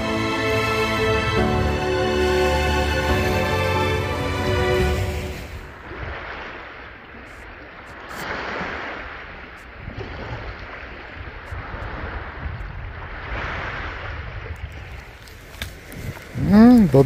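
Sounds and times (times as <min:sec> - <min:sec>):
waves washing onto pebbly shore: 0:02.2 - 0:17.0
wind rumbling on microphone: 0:04.8 - 0:17.0.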